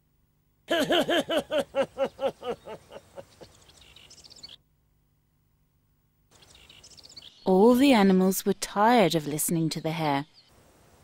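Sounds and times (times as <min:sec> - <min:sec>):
cartoon voice laughing: 0:00.7 - 0:03.4
faint bird chirps: 0:02.0 - 0:04.7.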